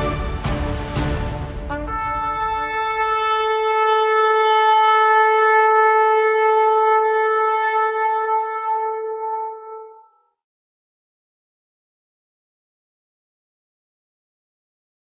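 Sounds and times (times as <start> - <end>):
shofar blast: 0.0 - 10.2.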